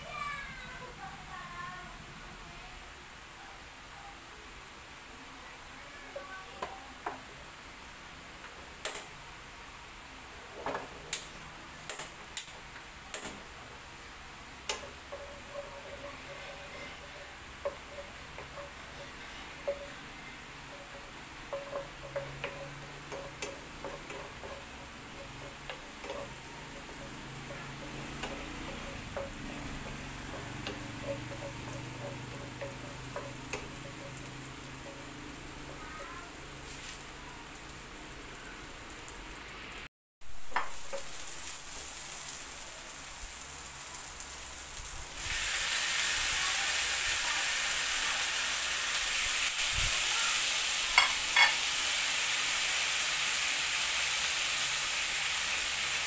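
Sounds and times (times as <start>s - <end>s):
faint frying sizzle: 0.0s - 56.0s
wooden spatula knocking on pan: 20.7s - 35.1s.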